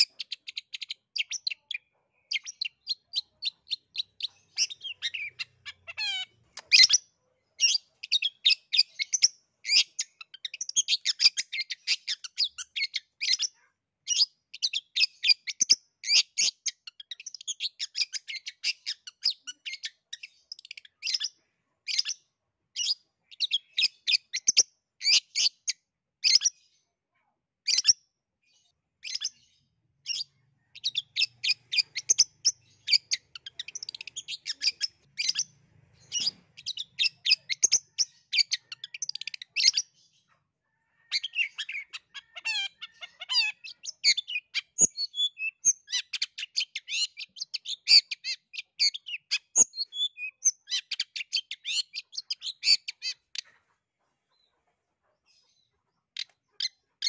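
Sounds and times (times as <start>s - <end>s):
bird singing chattering notes: 0.0s - 13.5s, 29.0s - 40.0s, 41.1s - 53.5s.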